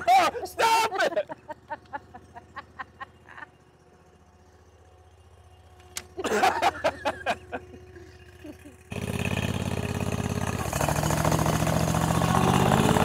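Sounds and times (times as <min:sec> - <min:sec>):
bursts of laughter: 0:00.0 - 0:03.6, 0:06.2 - 0:08.9
log splitter engine idling: 0:00.0 - 0:12.8.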